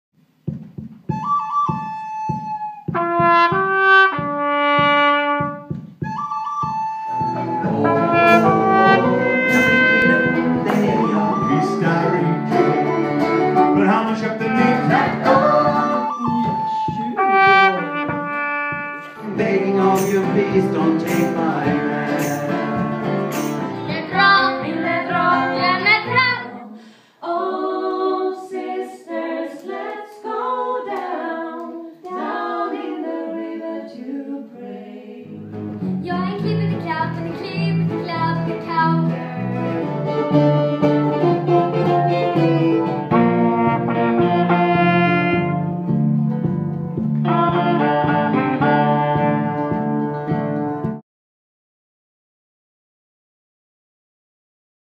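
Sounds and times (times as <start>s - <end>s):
guitar and fiddle accompaniment: 1.2s - 26.4s, 35.3s - 51.0s
man singing: 7.6s - 18.1s, 19.2s - 22.9s
girl singing: 23.9s - 35.0s, 36.0s - 39.4s.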